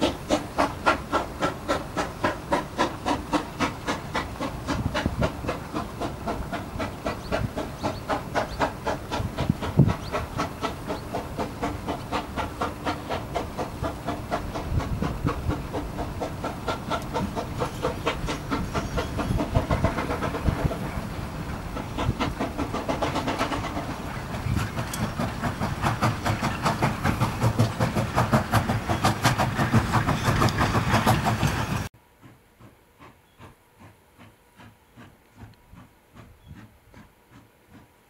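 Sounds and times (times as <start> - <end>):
steam hiss: 0.0 - 37.9
distant steam locomotive beat: 0.0 - 38.0
steam locomotive exhaust beating: 0.0 - 38.0
wind buffeting microphone: 3.0 - 31.9.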